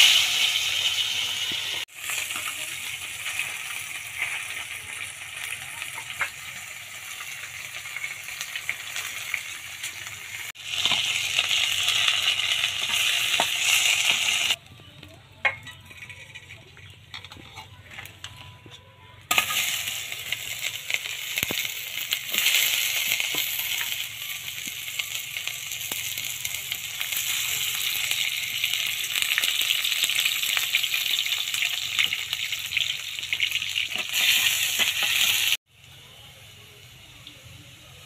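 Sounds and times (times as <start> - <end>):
onions sizzling in hot oil: 0.0 - 14.6, 19.3 - 38.0.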